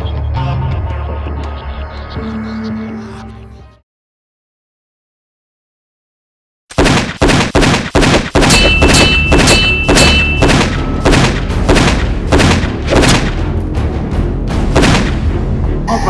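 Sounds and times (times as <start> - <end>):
music: 0.0 - 3.8, 10.1 - 16.0
gunshots: 6.7 - 13.6, 14.7 - 15.3.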